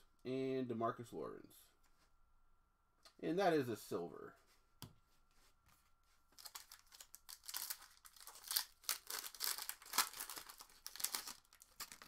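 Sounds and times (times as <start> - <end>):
foil wrapper tearing and crinkling: 6.4 - 12.0.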